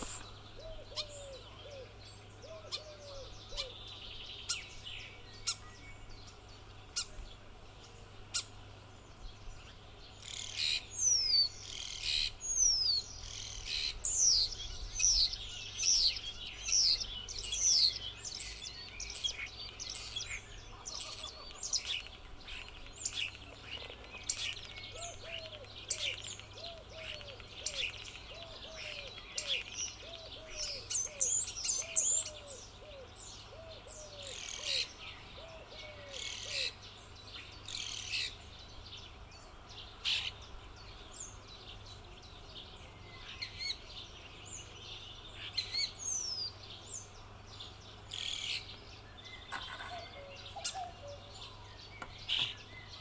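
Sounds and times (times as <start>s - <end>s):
lower bird call in pairs: 0.0s - 7.2s
birds chirping and trilling: 0.0s - 53.0s.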